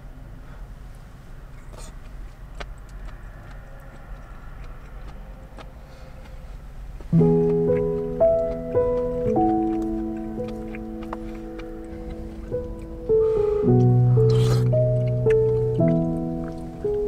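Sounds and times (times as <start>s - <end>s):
low steady rumble: 0.0s - 17.0s
piano chords: 7.1s - 17.0s.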